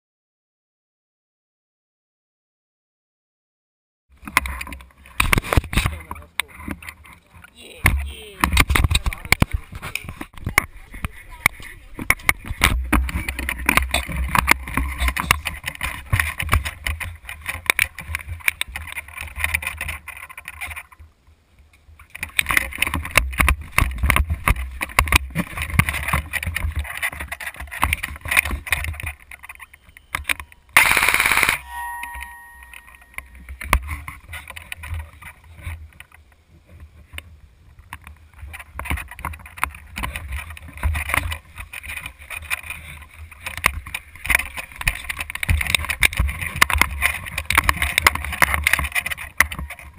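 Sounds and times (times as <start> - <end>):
loud burst: 30.8 - 31.8
clicking knocking and rattling: 37.8 - 49.9.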